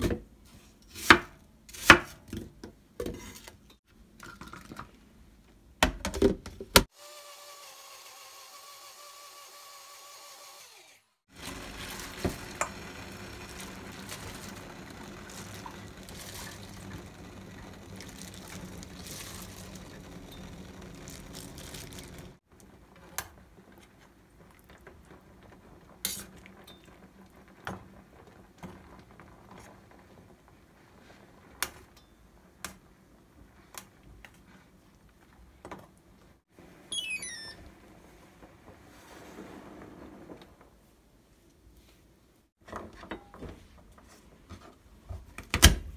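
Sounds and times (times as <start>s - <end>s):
blender motor running: 7.0s - 20.4s.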